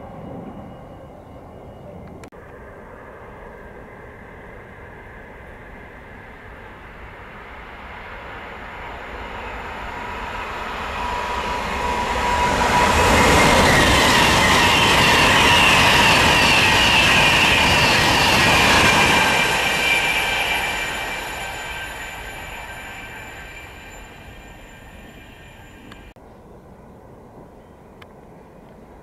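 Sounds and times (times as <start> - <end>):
train passing: 0.0 - 26.2
high whine dropping in pitch: 8.5 - 26.1.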